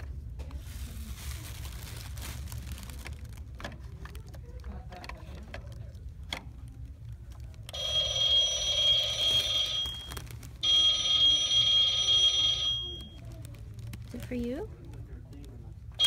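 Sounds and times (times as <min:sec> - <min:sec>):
telephone ringing: 0:07.7 - 0:13.2.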